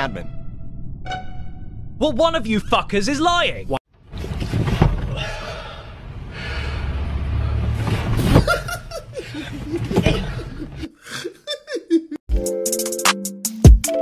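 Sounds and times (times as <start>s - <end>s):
music: 0.2s - 1.8s, 12.3s - 14.0s
man laughing hard: 8.4s - 12.2s.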